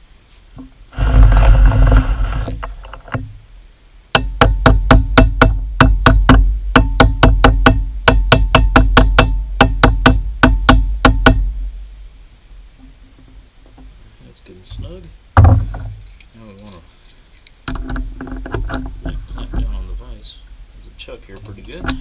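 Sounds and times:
noisy rustle: 0.0 - 4.2
hammer tapping metal workpiece: 4.2 - 11.4.

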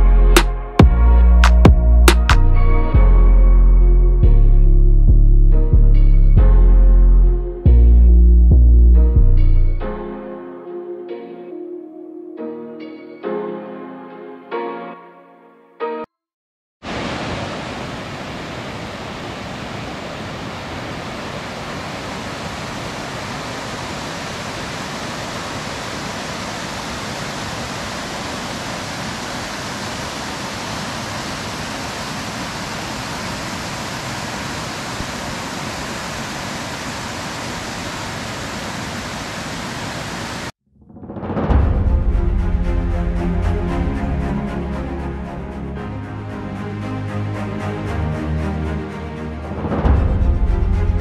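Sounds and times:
flowing water rushing: 16.8 - 40.5.

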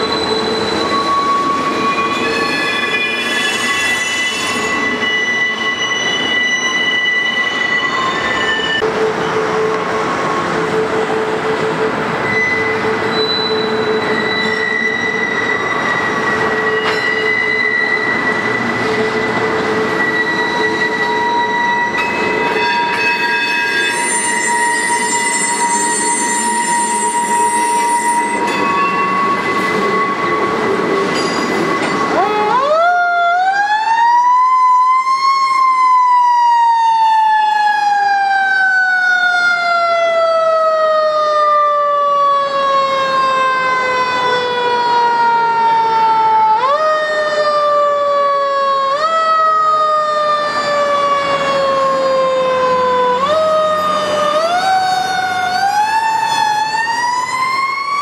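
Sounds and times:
freight train squealing: 0.0 - 32.7, 53.3 - 57.7
fire truck siren wailing: 0.0 - 58.0.

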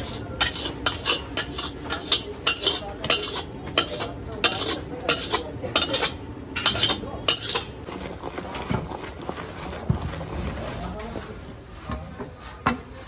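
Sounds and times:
metal spatula scraping iron pan: 0.0 - 10.4.

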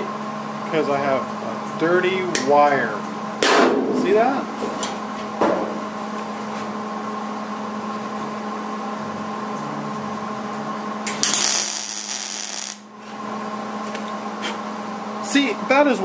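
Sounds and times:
steady low hum: 0.0 - 16.0
welding arc: 11.1 - 12.9.

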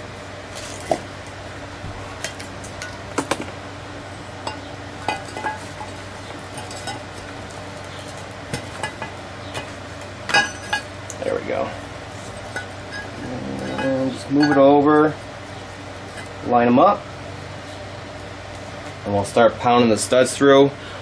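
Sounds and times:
metal clinks and knocks: 4.4 - 9.7, 10.3 - 11.0, 12.3 - 14.8.

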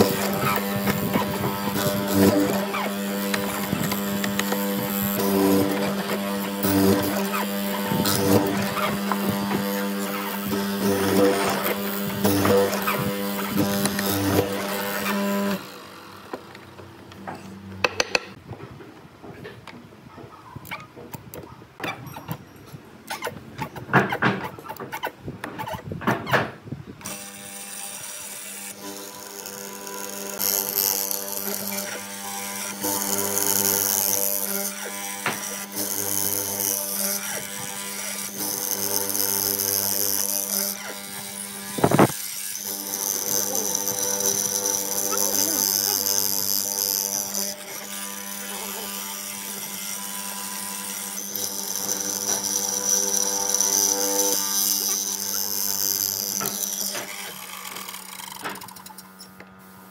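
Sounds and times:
mortiser motor humming: 0.0 - 18.4, 27.0 - 59.9
handling wood workpiece: 16.2 - 26.7
sharp knocks: 17.3 - 18.4
chisel cutting wood hiss: 28.6 - 49.8.

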